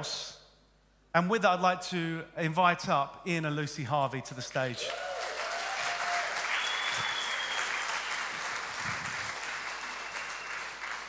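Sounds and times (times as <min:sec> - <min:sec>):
crowd applauding: 0:04.8 - 0:11.0.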